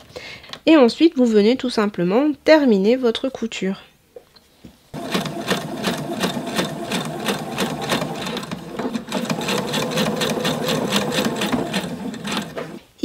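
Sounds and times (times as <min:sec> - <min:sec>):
sewing machine stitching: 0:05.0 - 0:12.8.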